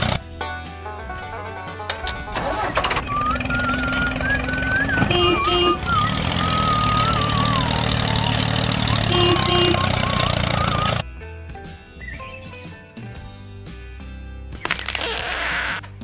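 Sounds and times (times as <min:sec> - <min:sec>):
vehicle engine running: 0:00.0 - 0:00.2, 0:01.9 - 0:11.0
high whistle-like tone: 0:02.5 - 0:11.0
short double beep: 0:03.0 - 0:07.2.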